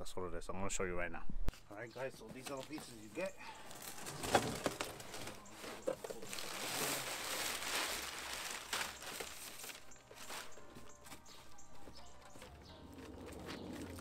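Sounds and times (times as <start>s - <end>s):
packing paper rustling: 2.3s - 11.8s.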